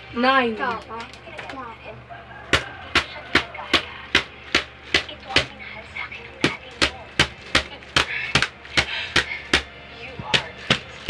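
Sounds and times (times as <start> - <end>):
plastic bottle slapping: 2.5 - 5.6, 6.4 - 11.0.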